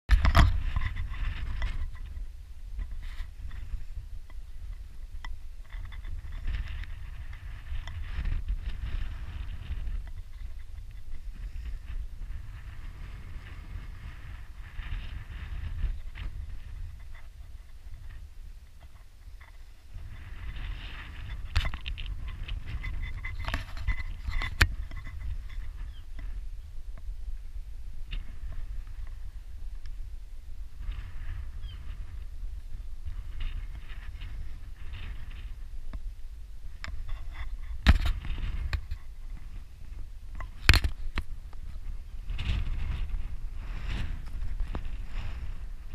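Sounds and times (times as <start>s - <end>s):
wind buffeting microphone: 0.1s - 45.9s
sharp clicks and knocks: 40.3s - 41.3s.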